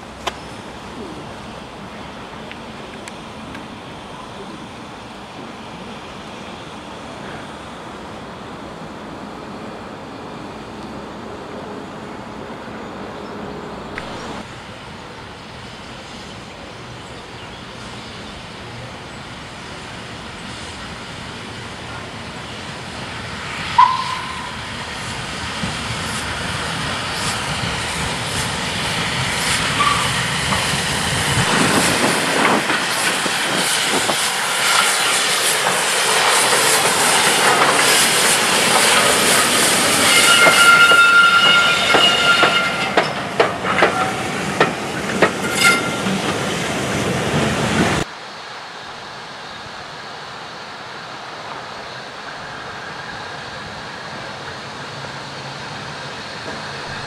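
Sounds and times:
steam hissing: 0.0 - 57.0
steam train passing: 0.0 - 57.0
wheels clacking over rail joints: 34.6 - 47.8
thin high squeal: 39.9 - 43.1, 45.4 - 46.1.

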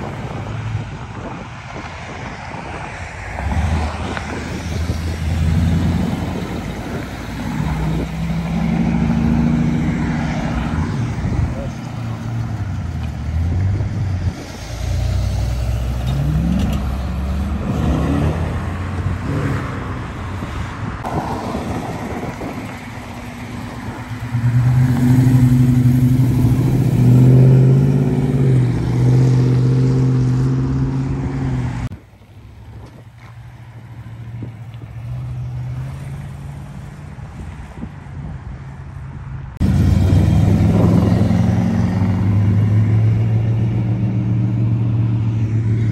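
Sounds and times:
distant traffic: 0.0 - 45.9
wind: 0.0 - 45.9
car engine revving away: 13.0 - 20.0, 24.2 - 31.9, 39.6 - 45.9
car rumbling past loudly: 39.6 - 45.9.

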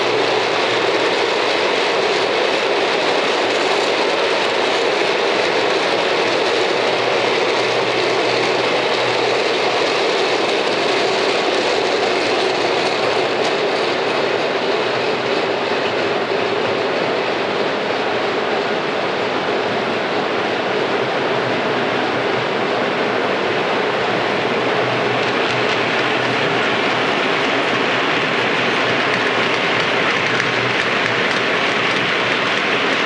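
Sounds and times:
model train wheels rattling on rail: 0.0 - 16.1, 25.0 - 33.0.

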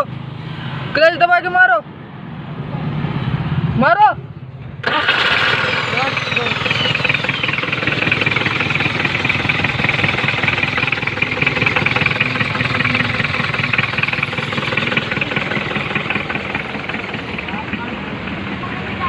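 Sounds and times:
car engine idling: 4.8 - 19.0.

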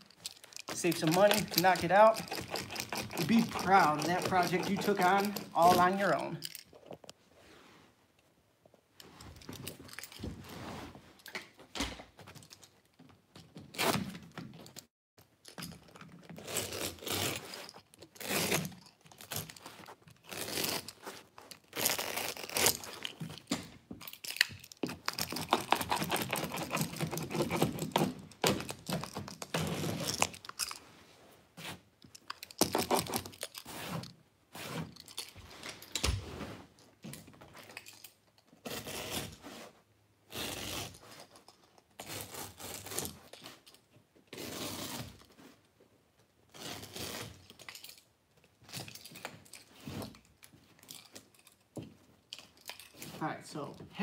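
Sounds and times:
carpet strip rustling and scraping: 0.0 - 14.9, 15.5 - 53.9
knife cutting carpet: 1.2 - 5.9.

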